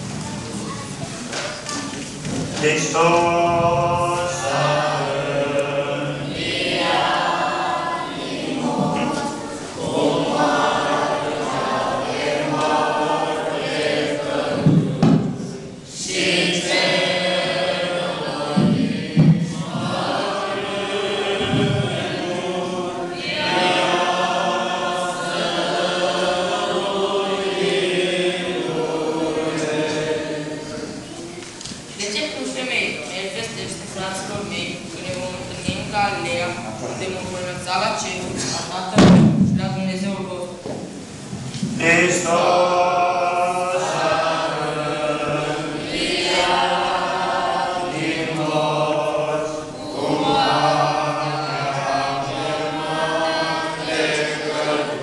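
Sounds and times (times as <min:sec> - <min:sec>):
voices singing a chant: 0:01.7 - 0:32.1, 0:40.9 - 0:55.0
low thumps: 0:14.2 - 0:15.8, 0:18.3 - 0:22.6, 0:34.2 - 0:40.0.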